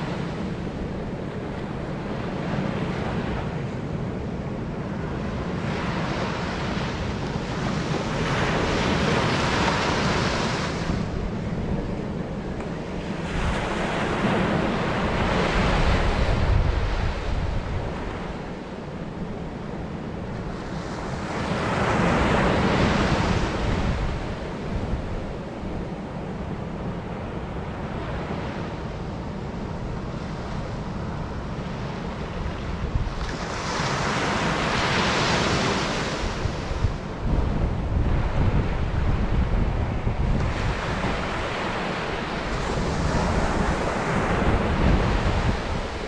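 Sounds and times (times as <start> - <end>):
surf breaking on a sandy beach: 0.0 - 46.0
wind buffeting microphone: 0.0 - 46.0.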